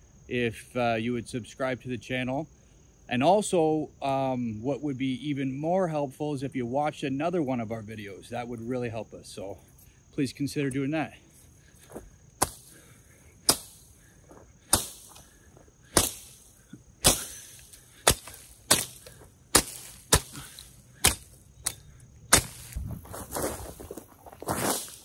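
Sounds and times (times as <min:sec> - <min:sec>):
crickets chirring: 0:00.0 - 0:25.0
machete chopping brush: 0:12.4 - 0:23.4, 0:24.5 - 0:25.0.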